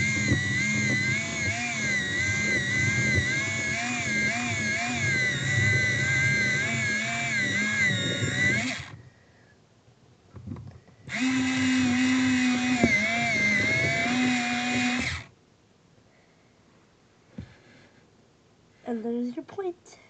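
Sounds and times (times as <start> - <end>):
electric pencil sharpener whining: 0.0 - 9.0, 11.1 - 15.3.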